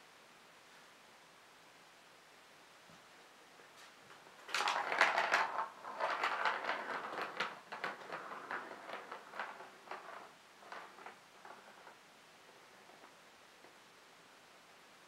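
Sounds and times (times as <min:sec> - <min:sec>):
plastic ball rattling on track: 0:04.1 - 0:13.8.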